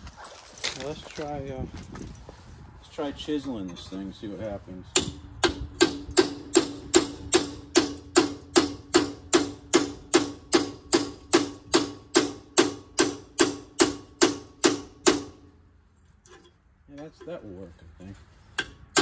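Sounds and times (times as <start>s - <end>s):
hammer striking steel chisel: 4.9s - 15.4s, 18.6s - 19.0s.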